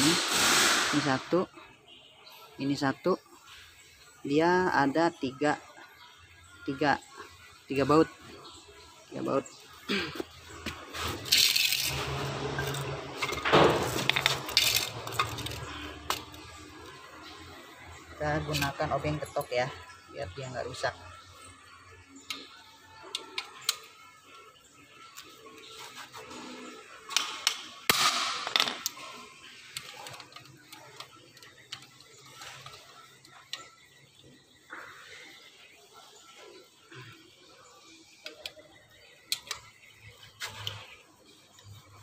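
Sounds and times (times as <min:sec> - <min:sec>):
metal clattering and scraping: 0:11.0 - 0:16.4.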